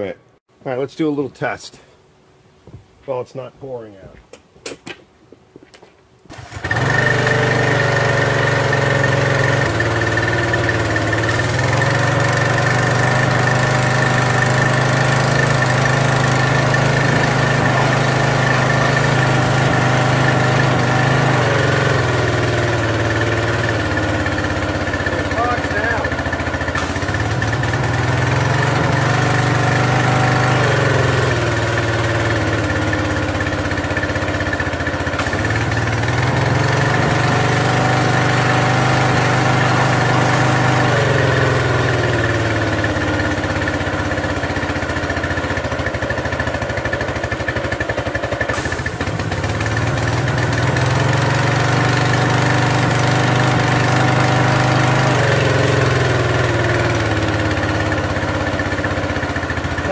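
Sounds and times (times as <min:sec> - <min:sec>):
pressure washer engine revving: 0:06.3 - 0:59.9.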